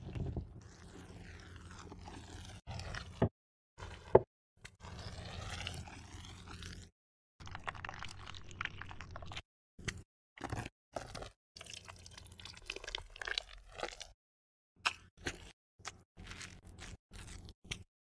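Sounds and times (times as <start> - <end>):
rolling pin scraping over pastry: 0.2 - 3.3.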